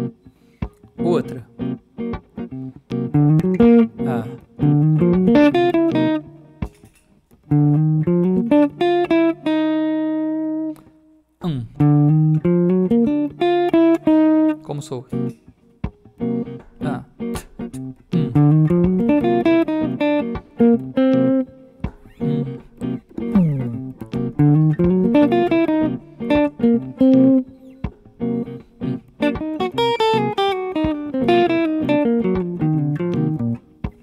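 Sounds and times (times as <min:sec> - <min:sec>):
electric guitar playing fast phrases: 0:00.0 - 0:10.8, 0:11.5 - 0:34.0.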